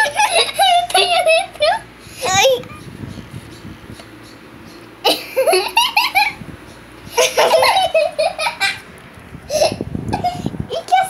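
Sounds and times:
child laughing: 0.0 - 2.6, 5.0 - 6.4, 7.1 - 8.9, 9.5 - 11.0.

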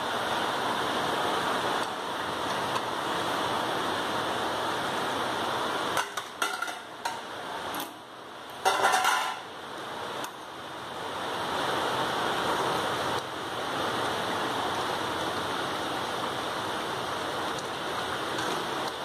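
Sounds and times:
steady rushing hiss: 0.0 - 19.0
metal spoon scraping a pan: 8.6 - 9.5.

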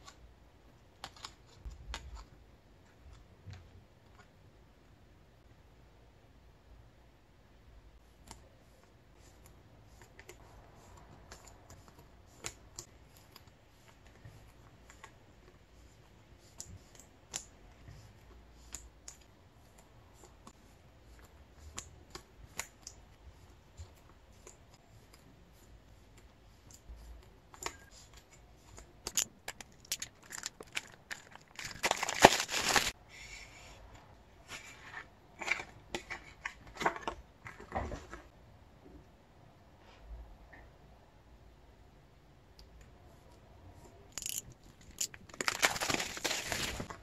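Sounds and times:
plastic sleeves rustling: 27.7 - 33.0, 44.1 - 47.0.

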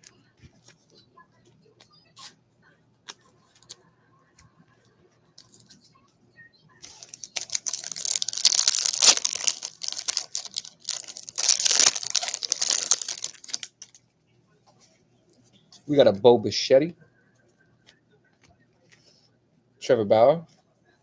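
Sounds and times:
wrapper crinkling and tearing: 6.8 - 14.0.

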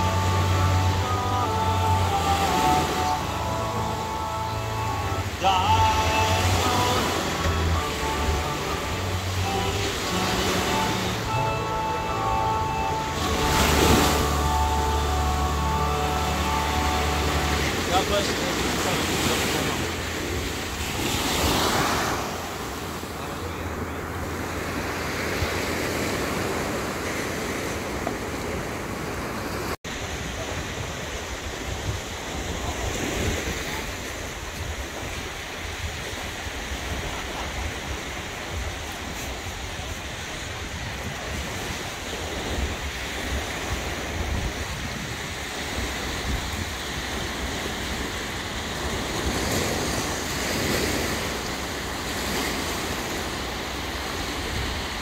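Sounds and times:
small waves breaking on beach: 0.0 - 55.0
wind buffeting microphone: 27.8 - 55.0.

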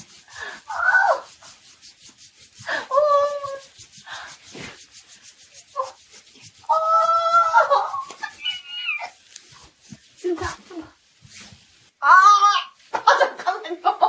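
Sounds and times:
hands rubbing on skin: 0.0 - 12.0
woman's high-pitched cries: 2.7 - 3.8, 6.7 - 9.2.

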